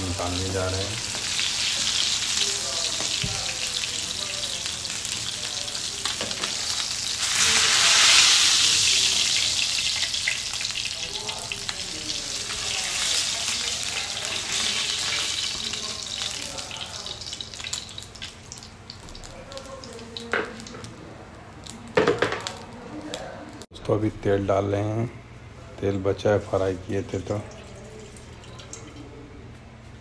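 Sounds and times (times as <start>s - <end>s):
fish sizzling in hot oil: 0.0s - 20.7s.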